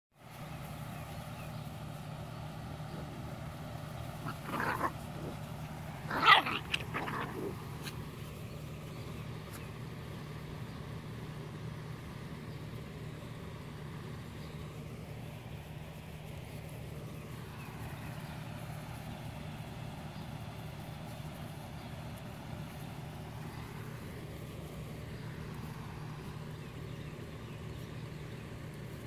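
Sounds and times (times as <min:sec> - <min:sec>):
steady low hum: 0:00.2 - 0:29.0
dog barking: 0:06.1 - 0:07.5.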